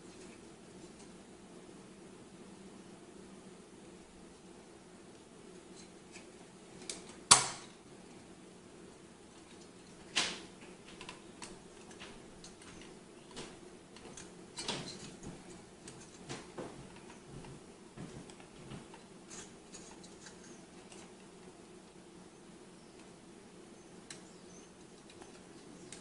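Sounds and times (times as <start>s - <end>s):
clicks and knocks handling fan: 5.6s - 7.8s, 9.3s - 21.5s, 24.0s - 26.0s.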